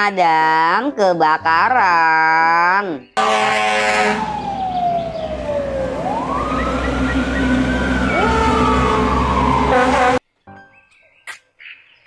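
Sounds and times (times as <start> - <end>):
fire truck horn blast: 3.2 - 4.4, 6.6 - 10.2
engine and road rumble: 3.2 - 10.2
siren wailing: 3.3 - 10.2.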